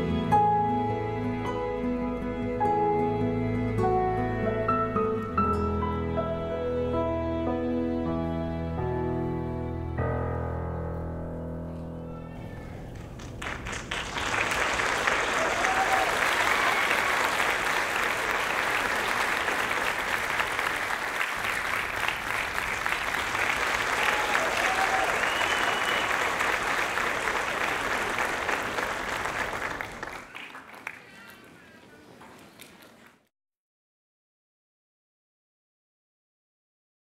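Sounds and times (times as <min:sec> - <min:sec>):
audience applauding: 0:12.7 - 0:33.2.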